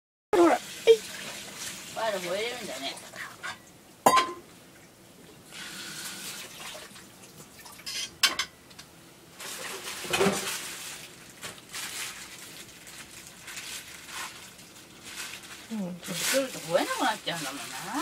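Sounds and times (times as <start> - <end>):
rustling and clattering of clutter: 9.4 - 18.0.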